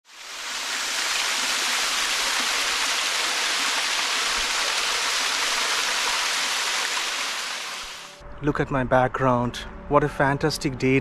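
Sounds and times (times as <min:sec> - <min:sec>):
waterfall pouring onto rocks: 0:00.1 - 0:08.0.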